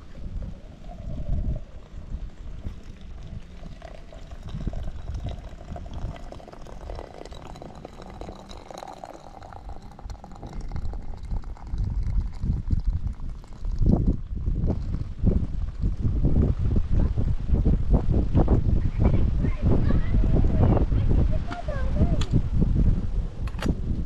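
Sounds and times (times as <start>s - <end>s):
liquid pouring into container: 0.1s - 16.5s.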